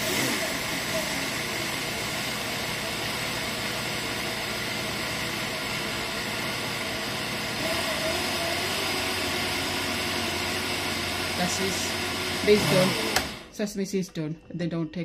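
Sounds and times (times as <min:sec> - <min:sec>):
blender motor grinding seeds: 0:00.0 - 0:13.5.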